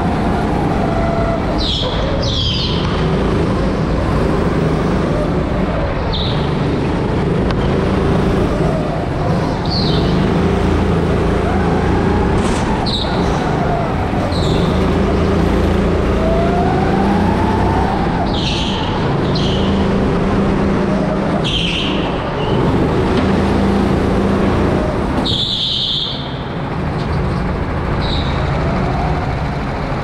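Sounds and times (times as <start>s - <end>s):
kart motor accelerating: 0.0s - 30.0s
tyre squeals: 0.4s - 2.8s, 10.9s - 19.8s, 25.2s - 26.4s.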